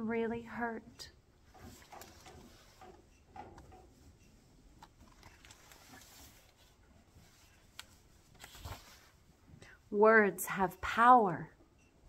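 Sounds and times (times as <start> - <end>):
book page turning: 5.0 - 9.2.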